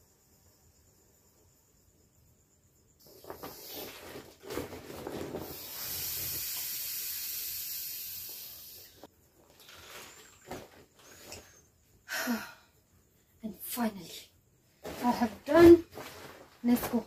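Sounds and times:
air hissing out of inflatable: 0:03.1 - 0:04.3, 0:05.1 - 0:09.1
plastic rustling: 0:03.1 - 0:05.8, 0:09.3 - 0:11.5, 0:14.8 - 0:17.0.

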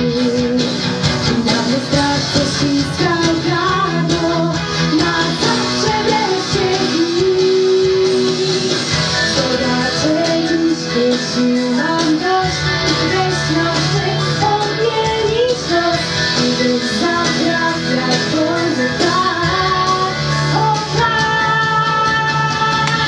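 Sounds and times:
instrumental backing track: 0:00.0 - 0:23.0
woman singing: 0:00.0 - 0:23.0.

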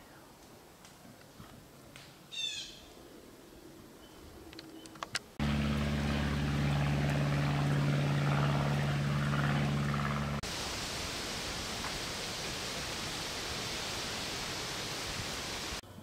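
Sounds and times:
engine running steadily: 0:05.4 - 0:13.3.

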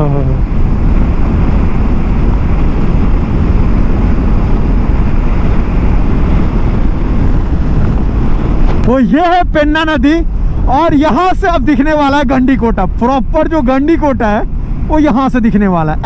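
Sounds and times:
motorcycle engine: 0:00.0 - 0:09.0
wind rushing over microphone: 0:00.0 - 0:16.0.

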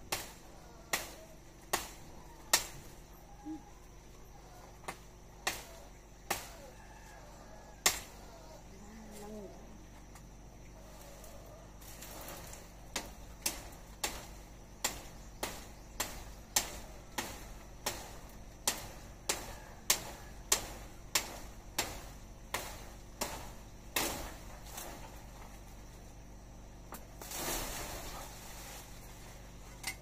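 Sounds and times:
knife chopping branches: 0:00.0 - 0:03.0, 0:04.8 - 0:06.7, 0:07.8 - 0:08.2, 0:11.8 - 0:25.9.

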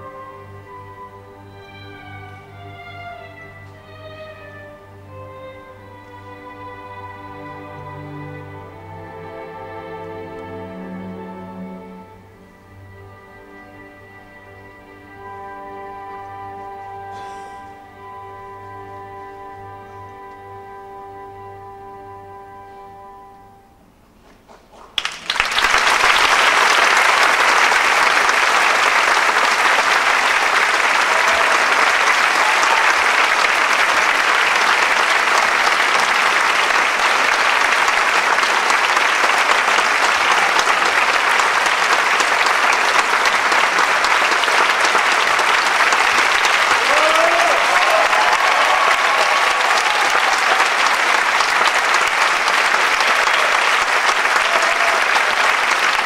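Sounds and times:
audience applauding: 0:24.5 - 0:56.0.

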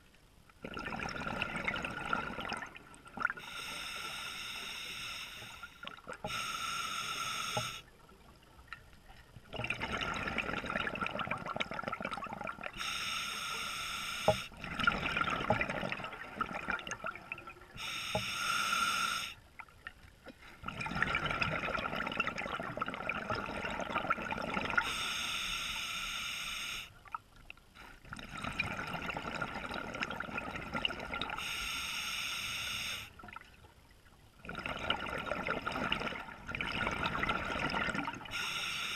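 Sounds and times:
exhaled bubbles rushing: 0:00.6 - 0:03.4, 0:09.5 - 0:12.8, 0:14.6 - 0:17.7, 0:20.6 - 0:24.8, 0:34.4 - 0:38.3
diver breathing through regulator: 0:03.4 - 0:07.9, 0:12.8 - 0:14.6, 0:17.8 - 0:19.4, 0:24.8 - 0:27.0, 0:31.4 - 0:33.2, 0:38.3 - 0:38.9.

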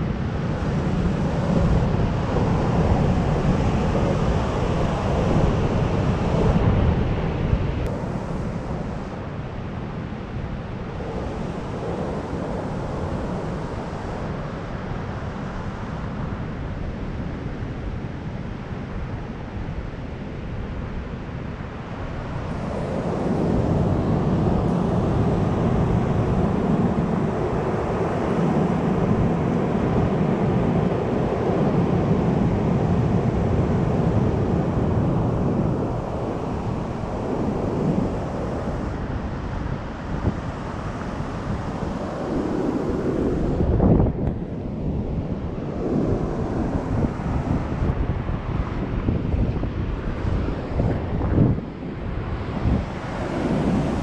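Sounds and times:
wind on microphone: 0:00.0 - 0:54.0
ocean surf breaking: 0:22.1 - 0:54.0.

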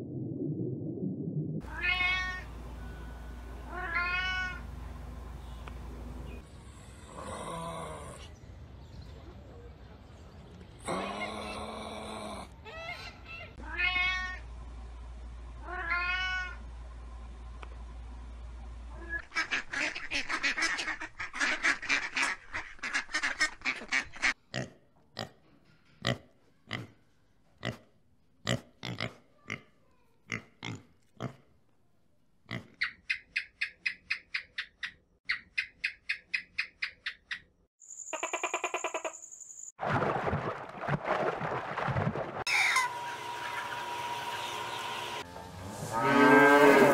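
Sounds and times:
animal call: 0:42.5 - 0:44.8.

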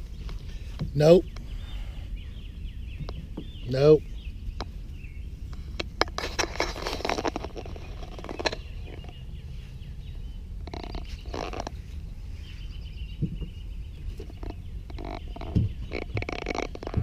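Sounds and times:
faint bird chirps: 0:00.0 - 0:05.7, 0:07.6 - 0:17.0
wind rumble on microphone: 0:00.0 - 0:17.0
rustling: 0:04.8 - 0:09.9.

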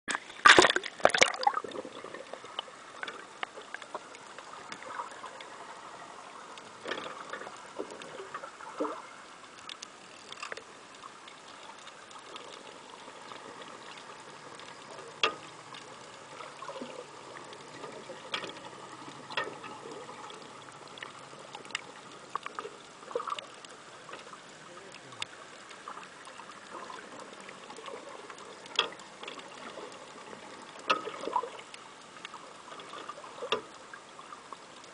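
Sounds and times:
water splashing: 0:00.1 - 0:34.9
sharp underwater clicks: 0:08.8 - 0:34.9.

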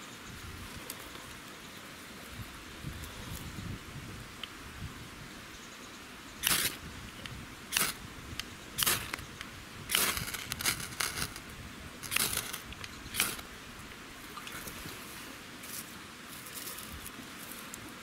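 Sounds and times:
striker scraping ferrocerium rod: 0:06.4 - 0:06.8, 0:07.7 - 0:08.0, 0:08.8 - 0:11.4, 0:12.0 - 0:13.5.

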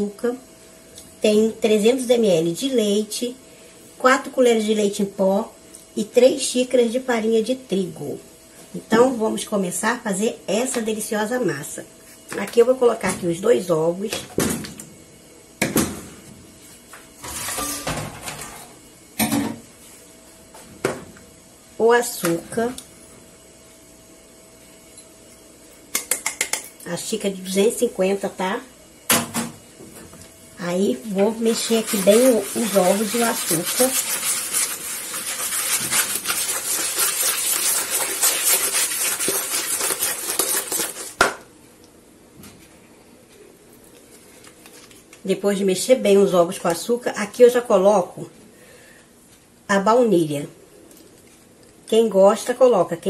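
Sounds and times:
plastic bowl scraping: 0:31.4 - 0:41.2.

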